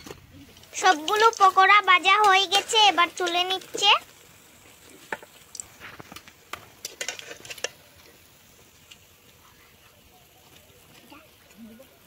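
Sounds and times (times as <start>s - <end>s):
metal skimmer scraping a pan: 0.0s - 3.9s, 4.6s - 8.2s
oil sizzling: 0.0s - 12.0s.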